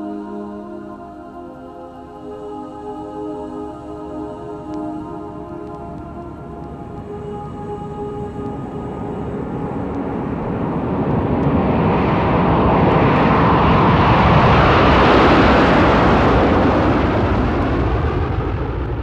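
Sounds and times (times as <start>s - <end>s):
jet airplane flying over: 4.9s - 19.0s.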